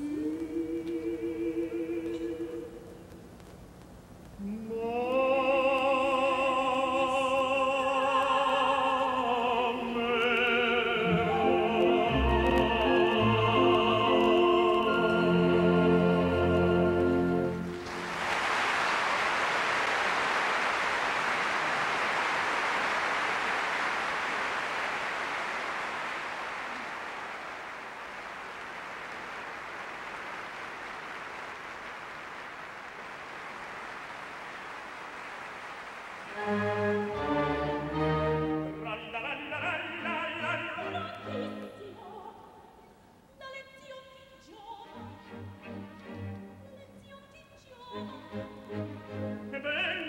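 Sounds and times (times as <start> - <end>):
operatic singing: 0.0 - 3.0, 4.4 - 17.8, 36.3 - 42.6, 43.5 - 50.0
string orchestra: 8.2 - 18.2, 36.3 - 42.2, 44.6 - 47.2, 47.8 - 50.0
audience applauding: 16.5 - 38.0.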